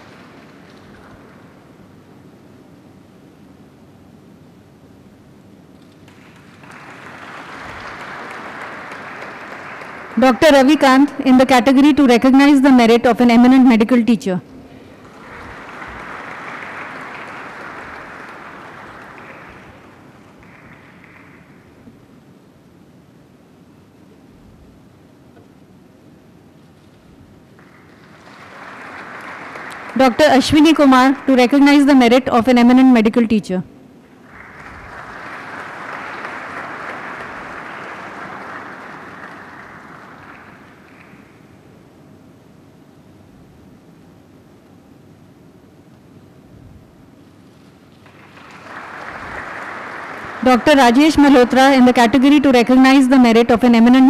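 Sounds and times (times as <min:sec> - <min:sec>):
audience applauding: 0:00.0 - 0:01.8, 0:05.8 - 0:11.4, 0:14.7 - 0:22.1, 0:27.5 - 0:32.3, 0:34.0 - 0:41.8, 0:47.9 - 0:53.9.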